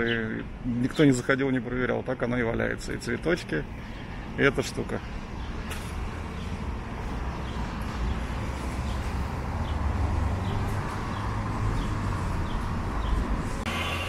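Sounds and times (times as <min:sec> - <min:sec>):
bird chirping: 0:00.0 - 0:01.2, 0:07.3 - 0:13.3
traffic rumble: 0:00.0 - 0:14.0.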